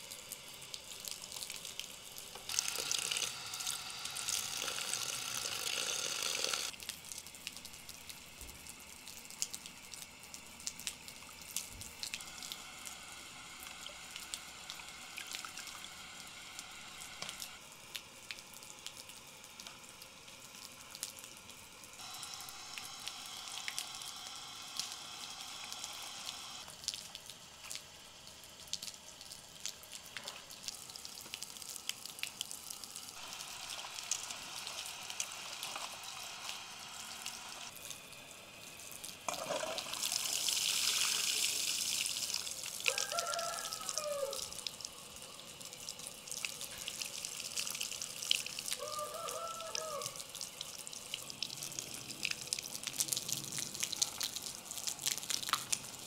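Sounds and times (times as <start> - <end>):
tap water pouring: 39.2 - 43.6.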